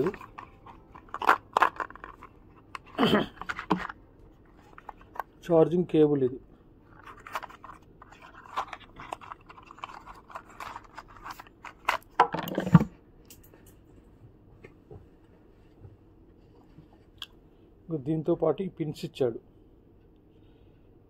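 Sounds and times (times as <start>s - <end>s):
cardboard rustling and scraping: 0.0s - 5.3s, 6.9s - 12.9s.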